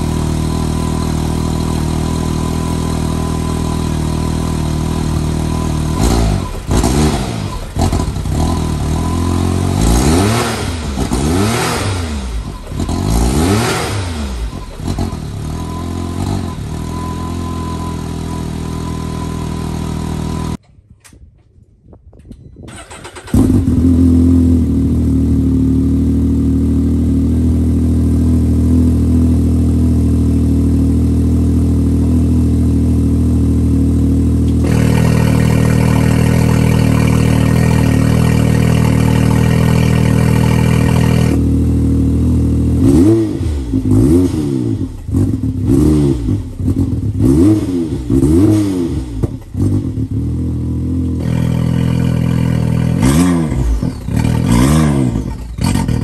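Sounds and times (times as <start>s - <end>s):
engine idling: 0.0s - 9.8s, 32.9s - 42.2s
engine throttle blips: 0.0s - 20.6s, 33.9s - 56.0s.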